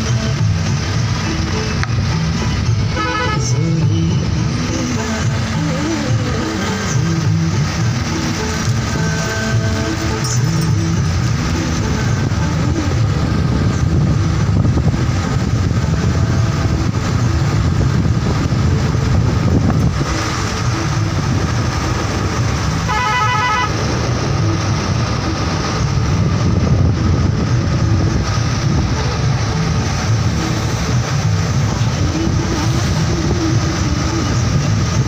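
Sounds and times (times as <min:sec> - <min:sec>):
road vehicle running: 0:00.0 - 0:35.0
pulsing vehicle horn beep: 0:02.9 - 0:03.6, 0:22.8 - 0:23.9.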